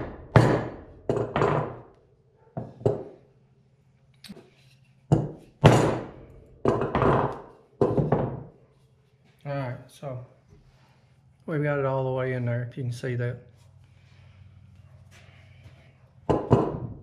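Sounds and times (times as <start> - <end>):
hammer striking wood block: 0.0 - 1.8, 5.1 - 8.3.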